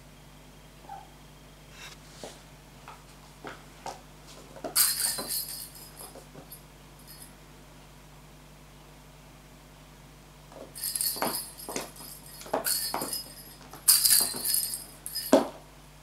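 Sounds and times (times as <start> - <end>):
clinking rattle: 4.8 - 7.3, 10.8 - 15.5.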